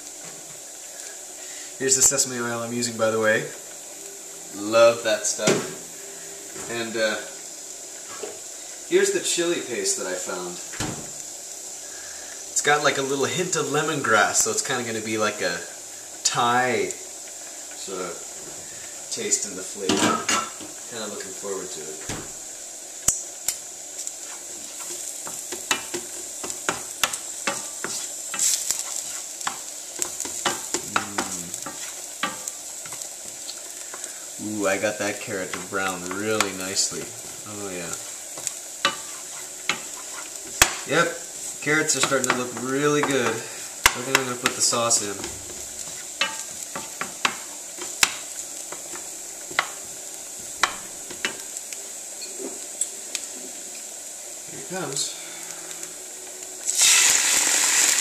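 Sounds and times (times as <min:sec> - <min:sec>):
carrots sizzling in a frying pan: 0:00.0 - 0:58.0
wooden spoon scraping a pan: 0:24.0 - 0:51.6
wooden spoon knocking pan: 0:25.5 - 0:28.5, 0:41.8 - 0:49.8.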